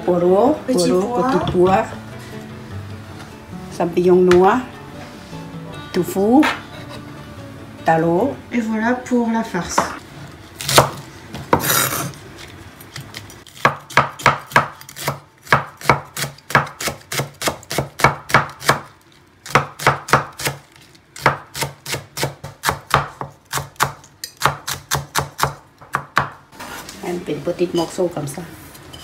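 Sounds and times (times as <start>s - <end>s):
knife chopping on wooden board: 10.6s - 12.0s, 13.6s - 18.8s, 21.2s - 26.4s.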